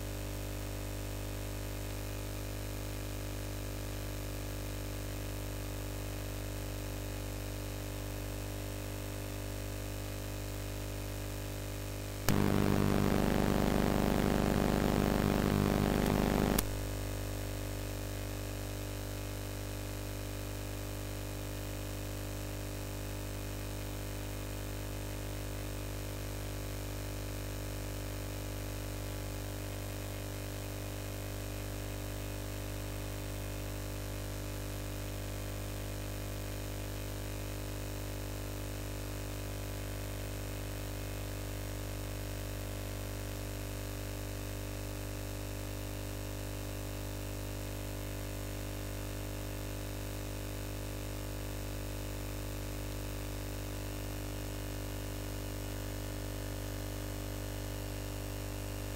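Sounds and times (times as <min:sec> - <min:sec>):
electrical hum with hiss: 0:12.1 - 0:18.3.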